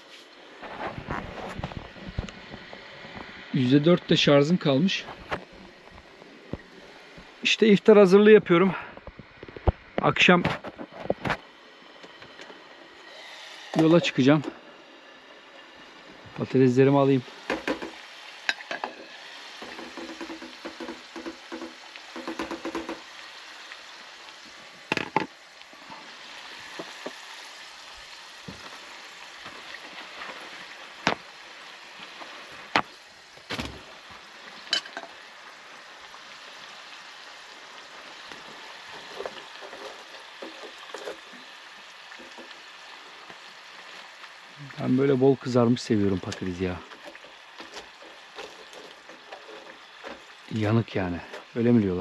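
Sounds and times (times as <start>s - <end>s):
potatoes sizzling in hot oil: 0.3s - 52.0s.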